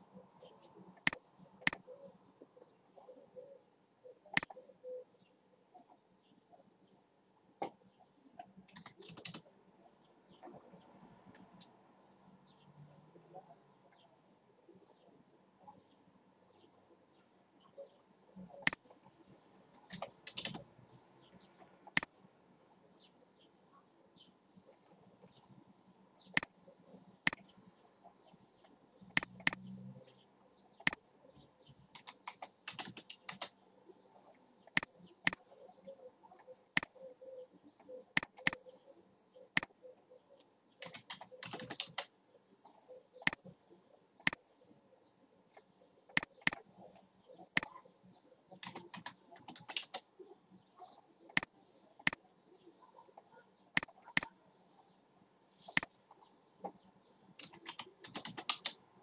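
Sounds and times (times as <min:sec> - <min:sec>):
computer mouse clicking: 0:08.7 - 0:09.4, 0:19.9 - 0:20.6, 0:29.1 - 0:29.7, 0:32.0 - 0:33.6, 0:38.2 - 0:38.6, 0:40.8 - 0:42.1, 0:46.1 - 0:46.6, 0:48.6 - 0:50.0, 0:53.2 - 0:54.3, 0:57.4 - 0:58.8
keyboard typing: 0:08.7 - 0:09.4, 0:19.9 - 0:20.6, 0:32.0 - 0:33.5, 0:38.2 - 0:38.6, 0:40.8 - 0:42.1, 0:48.6 - 0:50.0, 0:57.4 - 0:58.8.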